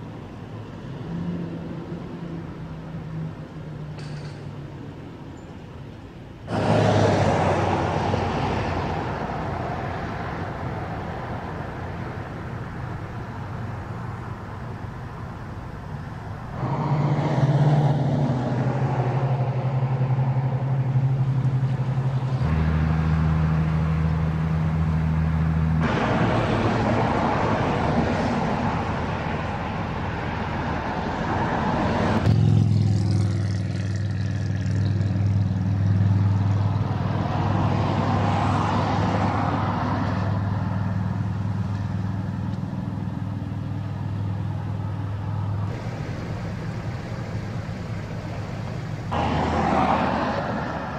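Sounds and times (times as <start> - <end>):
truck engines humming: 0.0 - 50.9
tyre noise on asphalt: 6.4 - 17.7, 45.6 - 50.9.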